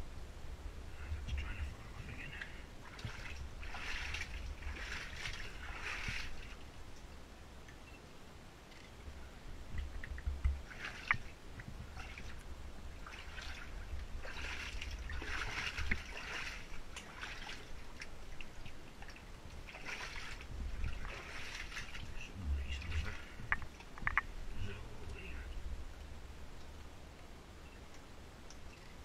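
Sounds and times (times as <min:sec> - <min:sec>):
boots sloshing through water: 0:01.4 - 0:06.7, 0:10.1 - 0:24.0
sharp drip-like clicks: 0:06.9 - 0:08.0, 0:08.6 - 0:08.9, 0:09.7 - 0:11.7, 0:17.9 - 0:19.7, 0:23.4 - 0:24.3, 0:26.5 - 0:29.0
low rumble: 0:20.3 - 0:27.8.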